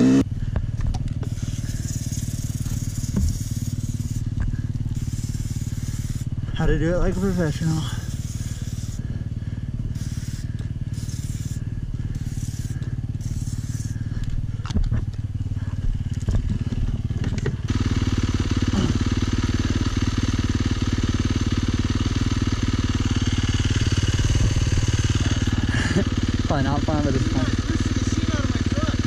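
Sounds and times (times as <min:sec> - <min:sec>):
motorcycle engine running: 0:00.0 - 0:29.0
aerosol spray hisses: 0:01.2 - 0:04.3, 0:05.0 - 0:06.3, 0:07.1 - 0:09.0, 0:09.9 - 0:14.0.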